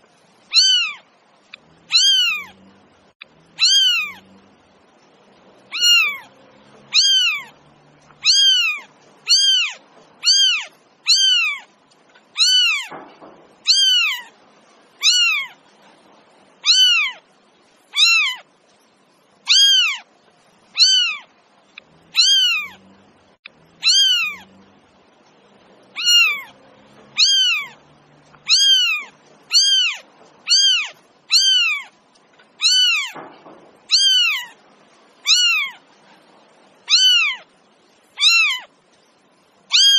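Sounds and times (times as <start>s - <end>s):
cat meowing: 0.5s - 1.0s, 1.8s - 2.6s, 3.5s - 4.4s, 5.7s - 7.6s, 8.2s - 13.0s, 13.6s - 14.3s, 15.0s - 15.6s, 16.6s - 17.2s, 17.9s - 18.5s, 19.5s - 20.1s, 20.7s - 21.3s, 22.0s - 22.9s, 23.8s - 24.5s, 25.9s - 32.0s, 32.6s - 33.2s, 33.9s - 34.6s, 35.2s - 35.9s, 36.8s - 37.5s, 38.2s - 38.7s, 39.7s - 39.9s.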